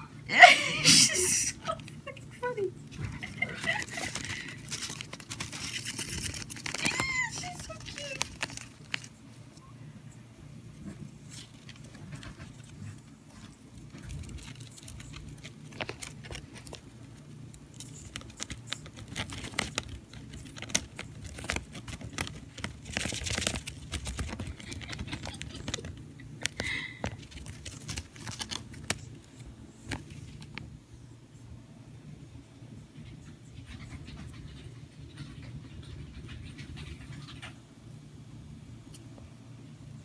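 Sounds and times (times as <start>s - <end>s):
hamster scrabbling and rustling: 2.9s - 9.6s, 10.7s - 30.7s.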